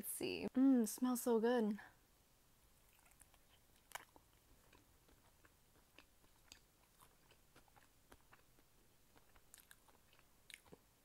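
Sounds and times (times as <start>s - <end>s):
faint chewing: 2.8s - 11.0s.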